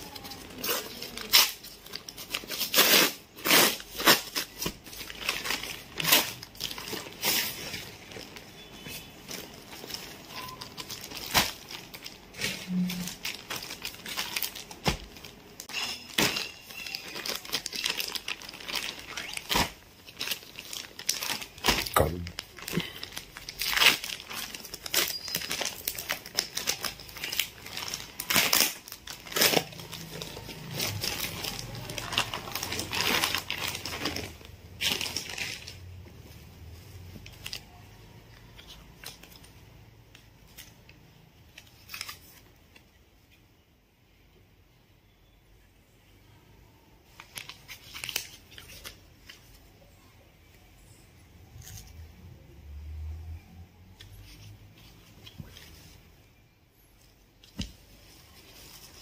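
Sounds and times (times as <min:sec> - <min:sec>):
plastic bag crinkling: 0:00.0 - 0:36.0.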